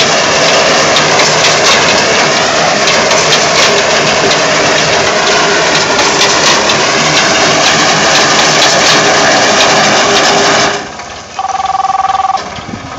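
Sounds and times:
tractor engine running: 0.0 - 12.9
electronic two-note tone: 11.4 - 12.5.

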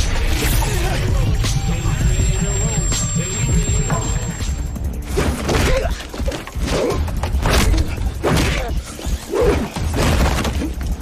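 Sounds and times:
hip-hop music beat: 0.0 - 5.1.

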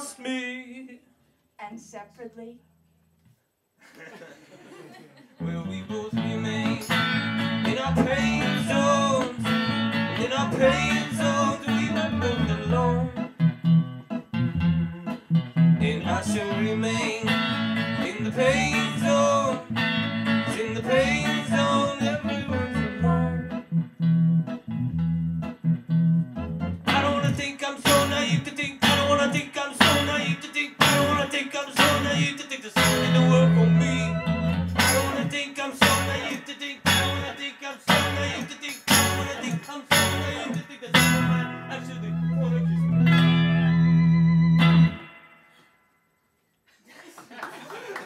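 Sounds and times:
person singing: 5.4 - 13.3, 15.8 - 19.8, 20.4 - 23.6, 26.9 - 43.0
guitar playing: 5.4 - 45.6.

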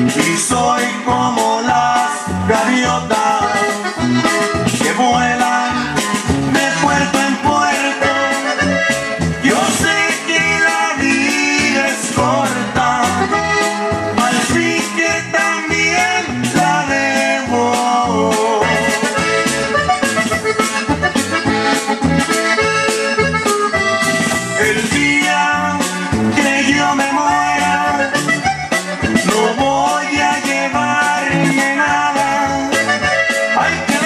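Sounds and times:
accordion latin dance music: 0.0 - 34.0.

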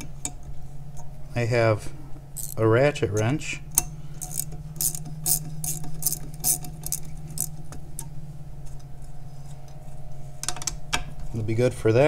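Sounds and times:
steady low hum: 0.0 - 12.0
ratcheting wrench clicking: 2.4 - 2.6, 3.8 - 7.6.

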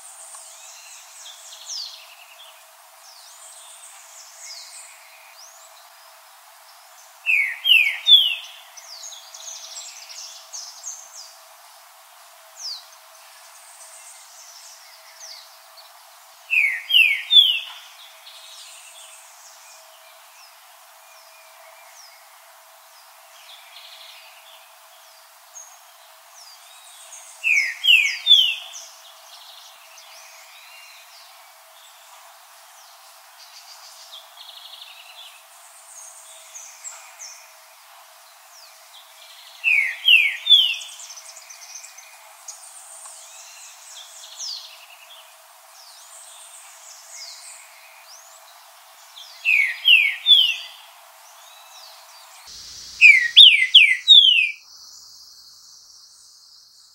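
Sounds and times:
high chirps and trills: 52.9 - 54.6
bird whistled notes: 53.0 - 54.6.

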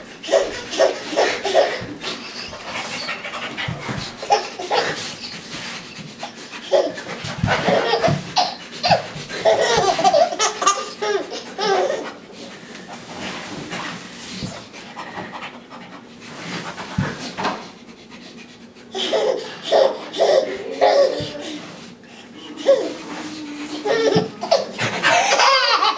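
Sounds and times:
baby laughing: 0.2 - 3.2, 3.8 - 5.4, 6.2 - 12.2, 18.9 - 21.6, 22.2 - 25.9.

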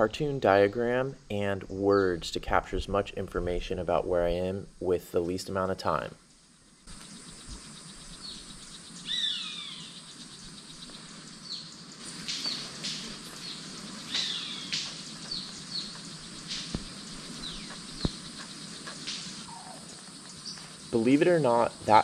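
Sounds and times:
high chirps and insects: 0.0 - 22.0
falling whistled bird calls: 6.9 - 22.0
bird wing snaps: 12.0 - 13.5, 14.1 - 18.2, 19.0 - 19.6.

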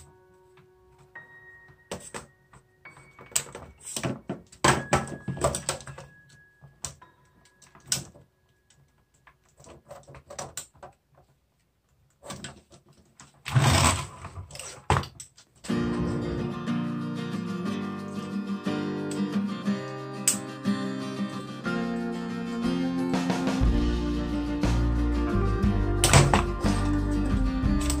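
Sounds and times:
plastic parts clicking and knocking: 3.0 - 11.4, 12.0 - 15.7
acoustic guitar music: 15.7 - 28.0.

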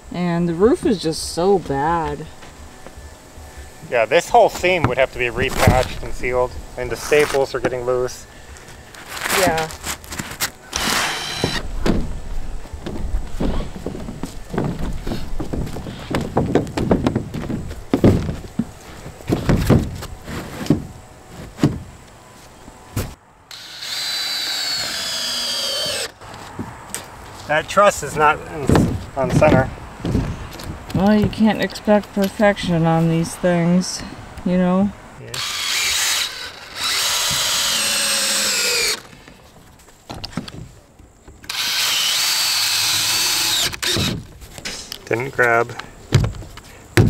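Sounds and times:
cordless drill driving screw: 10.7 - 11.6, 23.5 - 26.2, 35.3 - 39.1, 41.4 - 44.2
footsteps on roof: 11.4 - 22.0, 28.6 - 31.5, 46.1 - 47.0.

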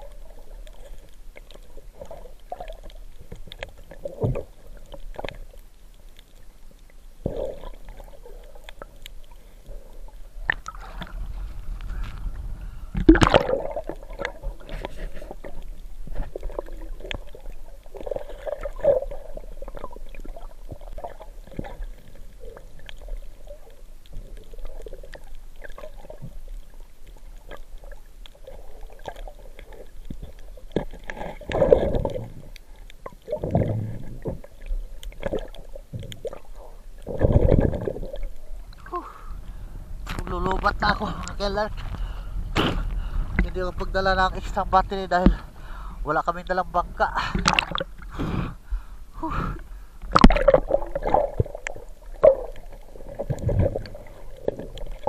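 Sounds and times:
gurgling water rush: 7.2 - 55.0
underwater clicks and knocks: 10.4 - 17.4, 47.3 - 48.0, 50.1 - 55.0.

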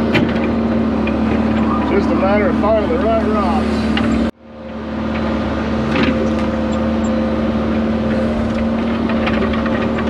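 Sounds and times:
diesel engine humming: 0.5 - 8.4.

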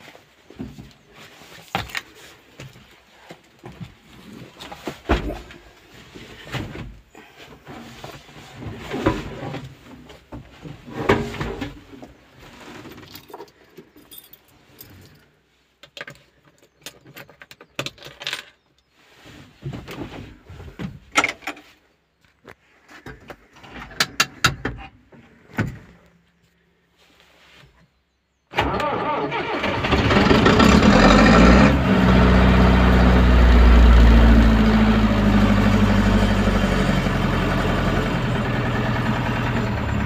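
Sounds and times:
keys jangling: 13.1 - 15.2.

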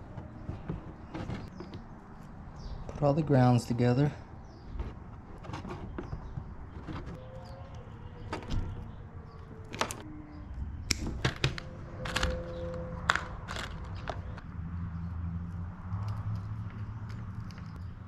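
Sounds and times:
clicks and rattles of wiring work: 4.7 - 10.0, 10.9 - 14.4.

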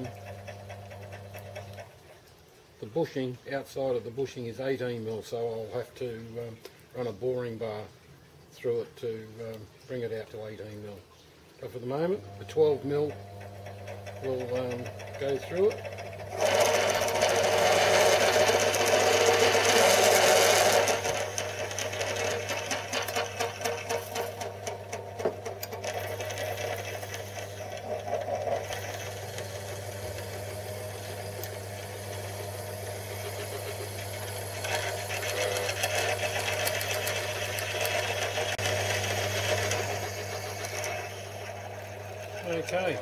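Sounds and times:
lathe motor hum: 0.0 - 1.9, 12.0 - 43.0
drill cutting metal: 12.4 - 43.0.

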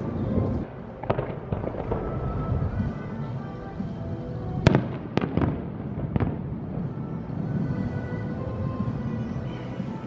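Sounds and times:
distant firework bangs: 0.6 - 3.1, 4.6 - 7.0.

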